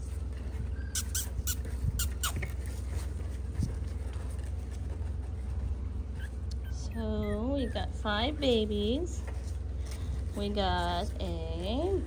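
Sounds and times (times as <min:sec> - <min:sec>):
steady low hum: 0:00.0 - 0:12.0
puppies squeaking: 0:00.6 - 0:03.2, 0:06.1 - 0:08.9.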